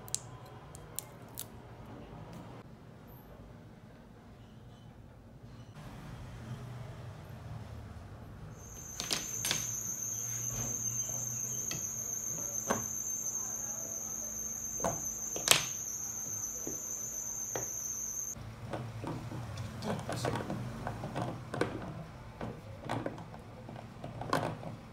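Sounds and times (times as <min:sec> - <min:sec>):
steady high-pitched tone: 0:08.6 - 0:18.4.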